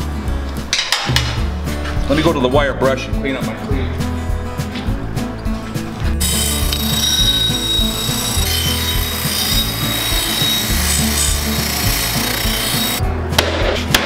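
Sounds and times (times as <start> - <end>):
background music with low beat: 0.0 - 14.0
wire wheel grinding metal: 6.2 - 13.0.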